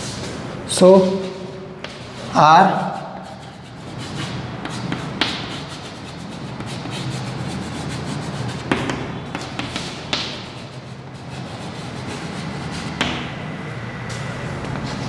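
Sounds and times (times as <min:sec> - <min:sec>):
chalk tapping and scraping: 0:00.0 - 0:13.3
steady low hum: 0:00.0 - 0:15.0.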